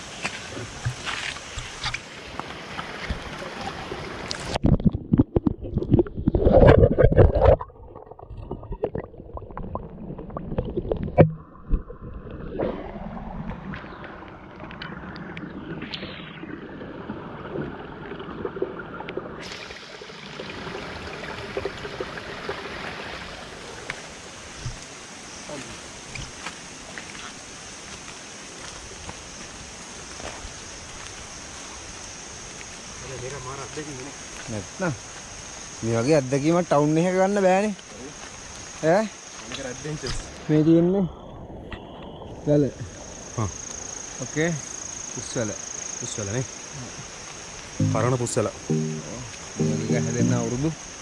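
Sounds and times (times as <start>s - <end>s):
stream running over rocks: 0.0s - 40.4s.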